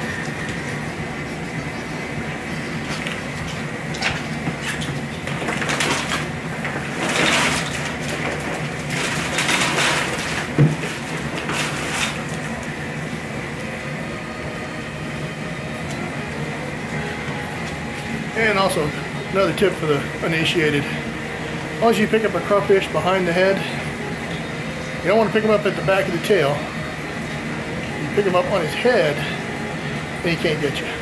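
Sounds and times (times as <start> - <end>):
steady low hum: 0.0 - 31.0
crawfish sliding and clattering: 2.7 - 12.7.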